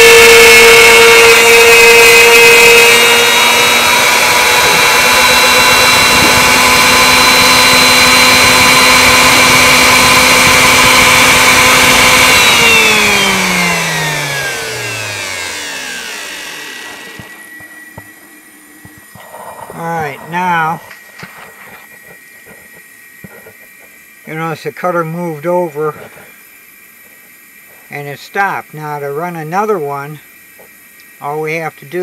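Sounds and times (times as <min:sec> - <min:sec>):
router spindle whining: 0:00.0 - 0:24.5.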